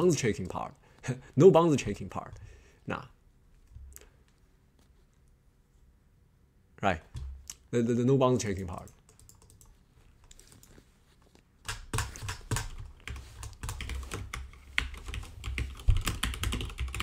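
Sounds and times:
computer keyboard typing: 0:08.6 - 0:10.8, 0:11.6 - 0:17.0.

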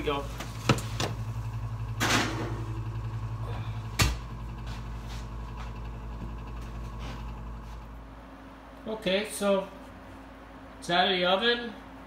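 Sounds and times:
steady low hum: 0:00.0 - 0:12.0
oven door shutting: 0:01.9 - 0:02.9, 0:03.5 - 0:04.5
skillet scraping: 0:02.0 - 0:08.1.

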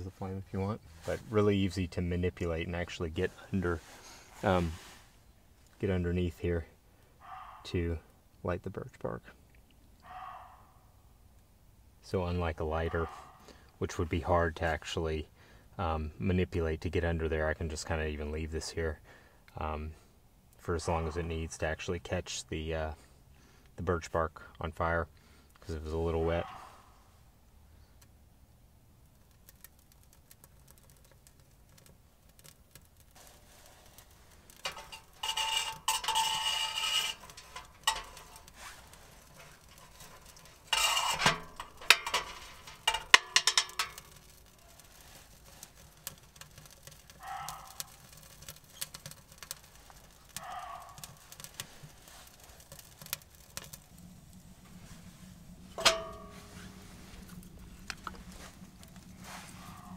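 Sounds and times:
fire crackling: 0:00.0 - 0:08.5, 0:10.8 - 0:59.9
deer barking: 0:07.2 - 0:07.6, 0:10.0 - 0:10.8, 0:26.4 - 0:27.0, 0:47.2 - 0:48.0, 0:50.4 - 0:51.1, 0:59.5 - 0:59.9
kindling clinking against wood stove: 0:29.2 - 0:59.9.

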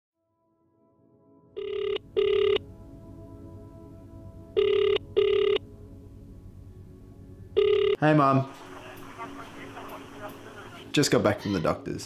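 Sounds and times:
telephone ringback tone: 0:01.6 - 0:02.6, 0:04.6 - 0:05.6, 0:07.6 - 0:08.0.

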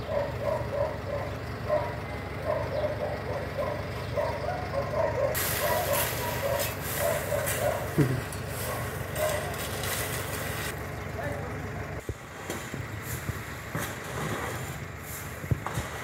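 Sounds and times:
dog barking: 0:00.0 - 0:08.0, 0:08.6 - 0:09.6
low engine rumble: 0:00.0 - 0:16.0.

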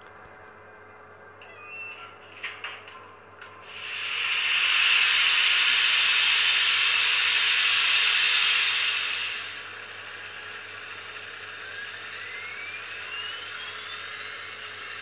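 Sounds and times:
model train steam hiss: 0:03.6 - 0:12.1.

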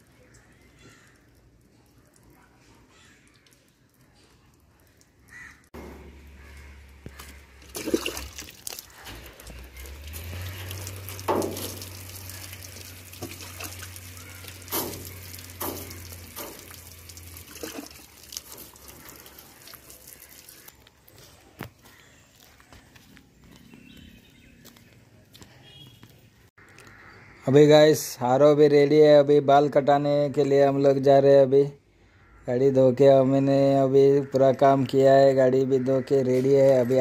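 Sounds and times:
water running and dripping: 0:00.0 - 0:21.2
water splashing on metal: 0:00.2 - 0:20.9.

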